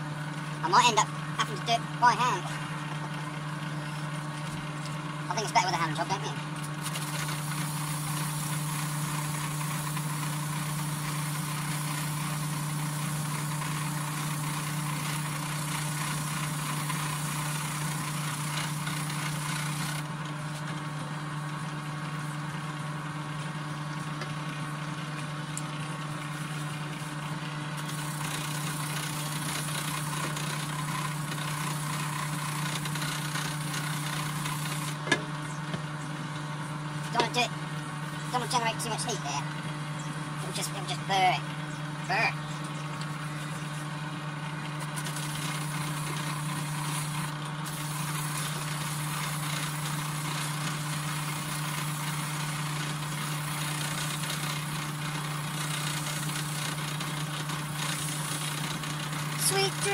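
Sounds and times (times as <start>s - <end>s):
electric grinder grinding metal: 6.8s - 20.1s, 27.8s - 35.0s, 44.9s - 59.9s.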